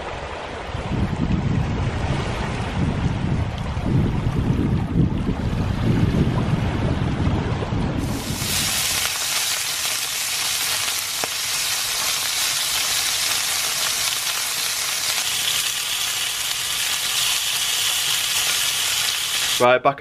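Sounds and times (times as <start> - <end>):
meat sizzling in a frying pan: 8.0 - 19.6.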